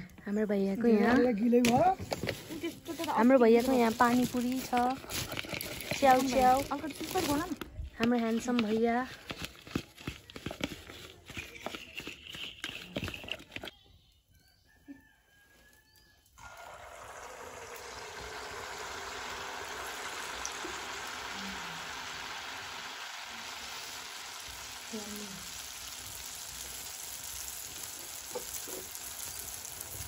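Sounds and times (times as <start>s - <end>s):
plastic bags rustling: 2.0s - 7.6s
batter sizzling in hot oil: 3.0s - 7.4s, 16.4s - 30.0s.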